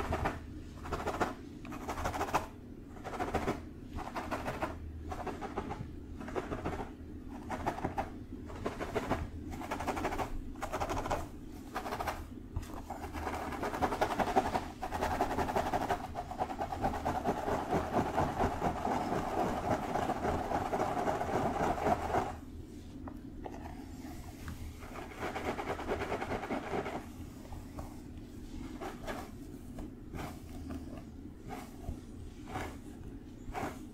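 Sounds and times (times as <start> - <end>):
fingertips scratching through hair: 24.8 - 33.9.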